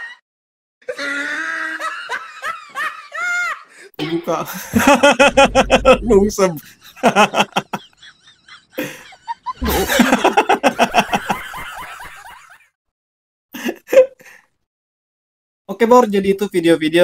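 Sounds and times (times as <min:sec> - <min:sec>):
person laughing: 0:04.5 - 0:11.6.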